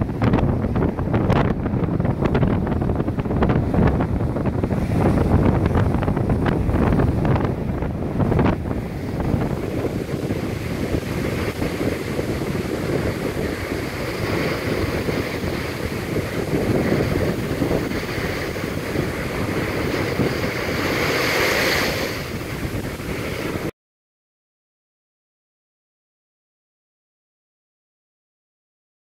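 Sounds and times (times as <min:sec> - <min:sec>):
waves breaking against sea wall: 0:00.0 - 0:23.7
wind buffeting microphone: 0:00.0 - 0:23.7
wave spray hissing: 0:04.6 - 0:23.7.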